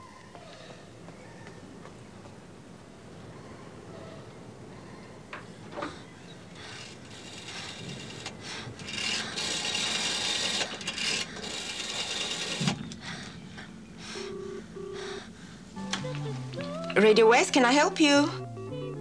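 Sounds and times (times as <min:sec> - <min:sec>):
rotary dial whirring: 0:06.5 - 0:13.0, 0:13.7 - 0:15.8
telephone ringing tone: 0:14.2 - 0:19.0.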